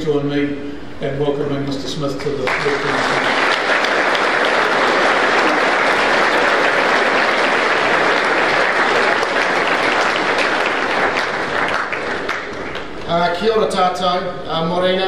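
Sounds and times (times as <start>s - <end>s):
audience applauding: 2.5s - 13.1s.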